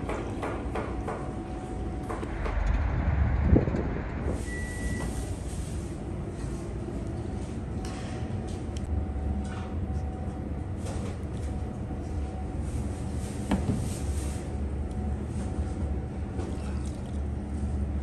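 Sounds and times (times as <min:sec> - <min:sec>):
low rumble: 0:02.2 - 0:05.5.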